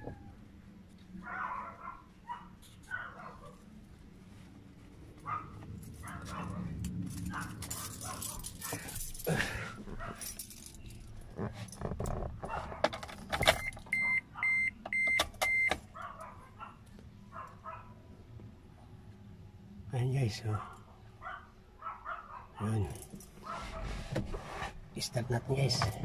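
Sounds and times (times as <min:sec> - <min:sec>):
keys jingling in ignition: 0:06.0 - 0:11.9
dashboard warning chime beeps: 0:13.5 - 0:15.8.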